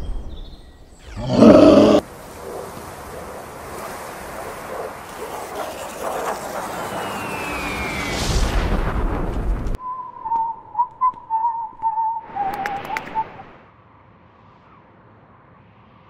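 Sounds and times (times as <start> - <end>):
cartoon monster roar: 1.1 - 2.1
falling high whistle: 7.0 - 8.4.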